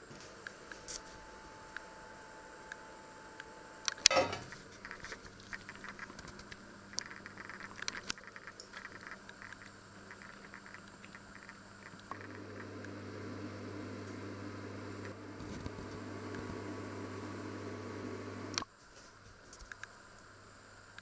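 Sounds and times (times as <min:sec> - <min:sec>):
steady low hum: 0:00.0 - 0:18.7
food crackling and popping: 0:03.9 - 0:18.7.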